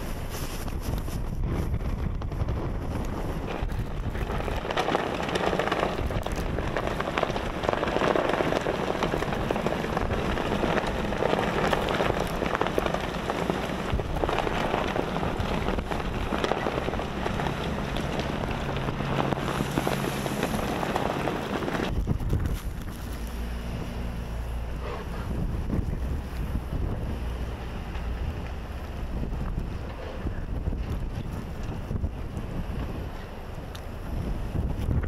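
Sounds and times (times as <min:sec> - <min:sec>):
blizzard wind rushing: 0:00.0 - 0:35.0
snow grains ticking: 0:03.7 - 0:23.4.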